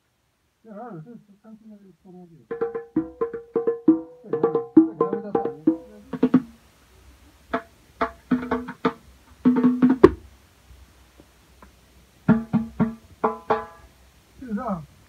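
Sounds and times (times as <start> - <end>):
hand drums beating: 2.5 - 6.6, 7.5 - 10.3, 12.2 - 13.9.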